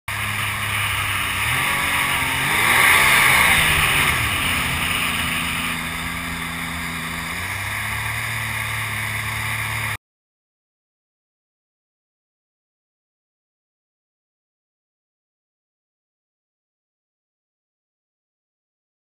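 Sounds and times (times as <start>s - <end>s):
jet boat engine revving: 0.1s - 10.0s.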